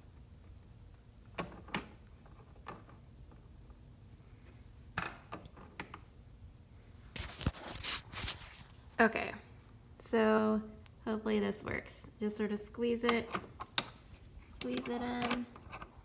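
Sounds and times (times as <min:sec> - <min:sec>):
phone rustling and scraping: 0:07.1 - 0:09.0.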